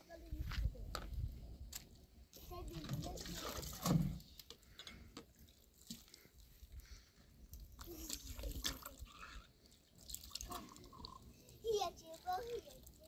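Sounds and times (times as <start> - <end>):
liquid pouring into a glass: 10.0 - 11.4.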